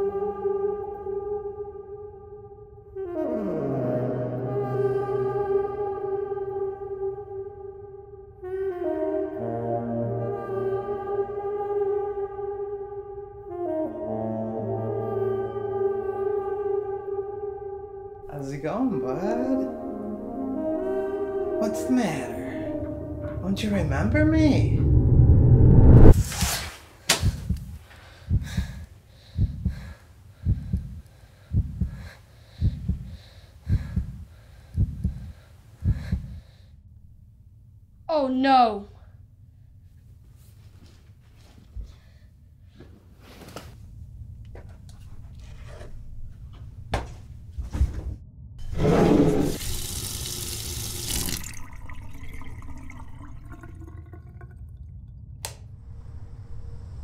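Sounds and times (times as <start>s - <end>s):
heartbeat thumping: 27.2s - 36.4s
water gushing into bathtub: 49.3s - 55.2s.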